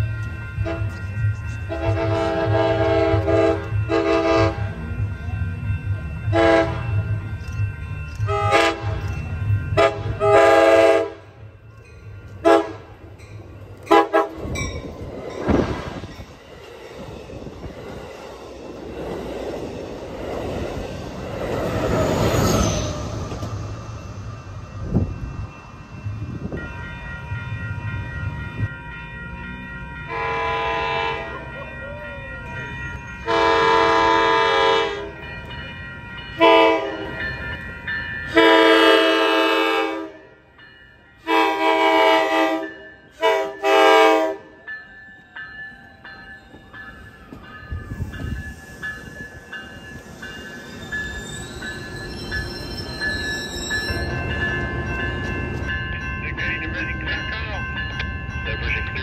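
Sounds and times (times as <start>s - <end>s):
train passing at speed: 0.0s - 59.0s
train horn blasts: 0.6s - 1.0s, 1.7s - 4.7s, 6.3s - 6.9s, 8.3s - 9.0s, 9.8s - 11.3s, 12.4s - 12.9s, 13.9s - 14.5s, 30.1s - 31.4s, 33.2s - 35.2s, 36.4s - 37.2s, 38.3s - 40.3s, 41.2s - 44.6s.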